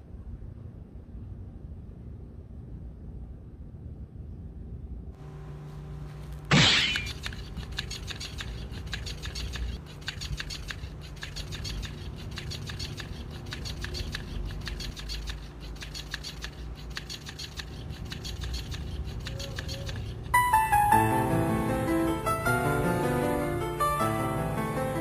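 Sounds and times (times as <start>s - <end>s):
toy motor clicking: 6.9s - 20.4s.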